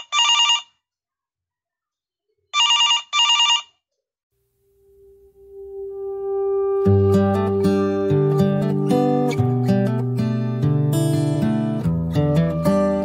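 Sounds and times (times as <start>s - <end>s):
telephone bell ringing: 0.0s - 0.8s, 2.6s - 3.8s
held musical note: 4.8s - 11.7s.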